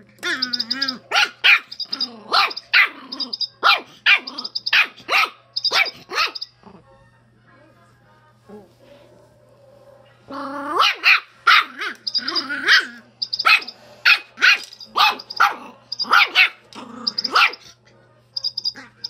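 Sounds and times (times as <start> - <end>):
toy electronic cheeps: 0.3 - 3.6, 4.2 - 4.9, 5.6 - 6.6, 11.9 - 14.0, 14.6 - 16.4, 17.0 - 17.5, 18.4 - 19.0
dog barking: 1.1 - 3.0, 3.6 - 6.5, 10.8 - 12.0, 12.6 - 17.8.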